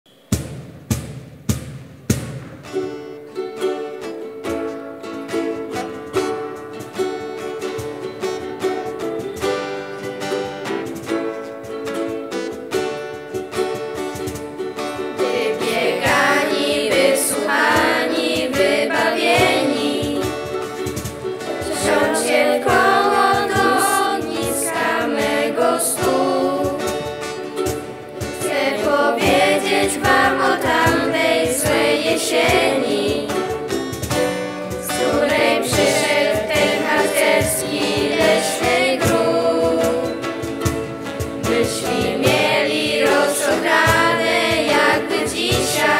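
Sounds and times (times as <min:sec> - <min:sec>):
acoustic guitar strumming chords: 0:00.1 - 0:45.9
ukulele strumming chords: 0:00.3 - 0:45.9
children singing together: 0:15.0 - 0:33.9, 0:34.7 - 0:45.9.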